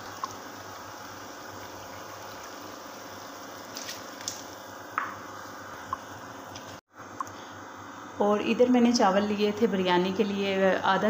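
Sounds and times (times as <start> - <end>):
water boiling in a pot: 0.0 - 6.8.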